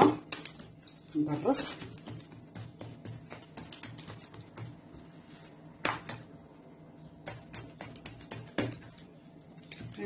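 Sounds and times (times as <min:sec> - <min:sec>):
hands tapping dough on marble: 0:01.5 - 0:05.1, 0:05.8 - 0:06.4, 0:07.2 - 0:10.0.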